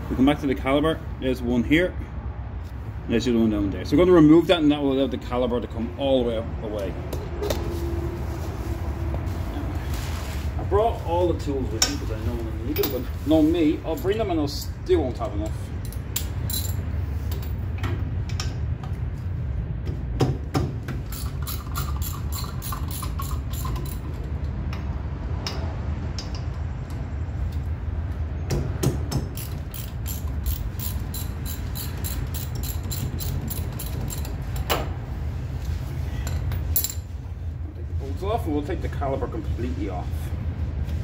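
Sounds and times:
socket ratchet clicking: 0:21.0 - 0:24.1, 0:29.3 - 0:34.7.

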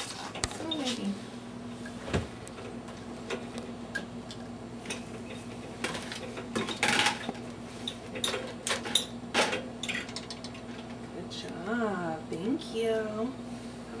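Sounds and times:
dishes clattering: 0:05.8 - 0:07.3.

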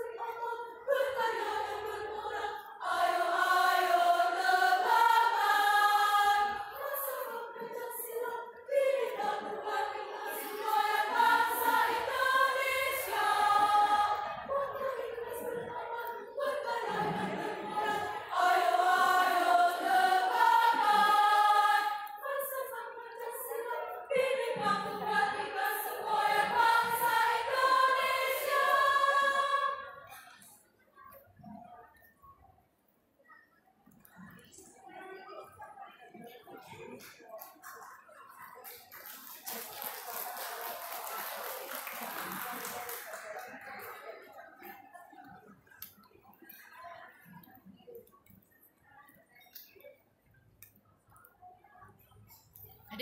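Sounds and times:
women's choir singing: 0:00.0 - 0:30.6, 0:39.5 - 0:47.6.

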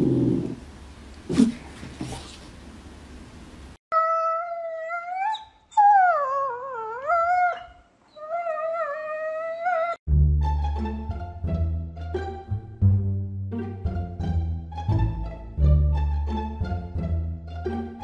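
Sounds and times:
small dog howling: 0:04.0 - 0:10.0
music: 0:10.1 - 0:18.0.

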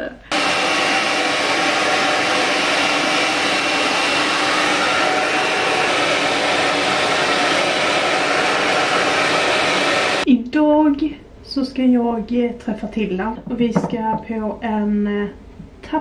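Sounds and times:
hair dryer blowing: 0:00.3 - 0:10.3.

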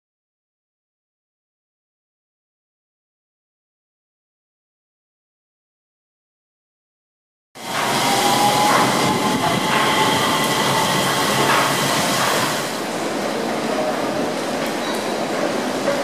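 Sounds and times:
tyres rumbling on guideway: 0:07.6 - 0:13.0.

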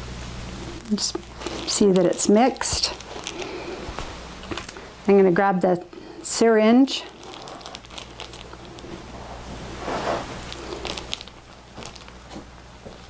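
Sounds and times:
plastic packaging crinkling: 0:00.8 - 0:04.9, 0:06.7 - 0:13.0.

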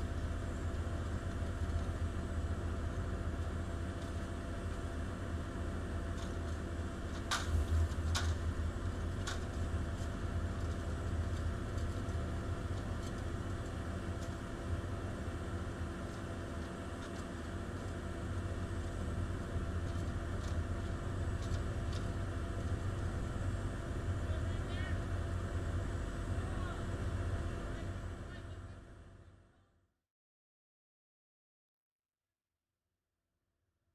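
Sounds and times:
large engine idling: 0:00.0 - 0:29.8.

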